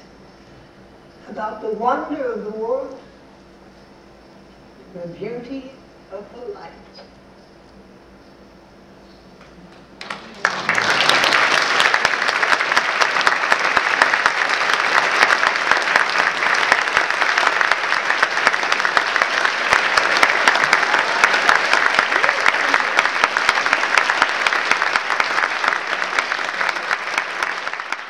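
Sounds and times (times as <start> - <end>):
audience applause: 10.0 - 28.0.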